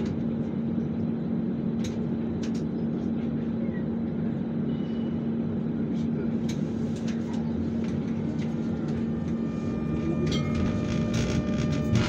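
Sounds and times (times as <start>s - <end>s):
tram rumble and hum: 0.0s - 12.0s.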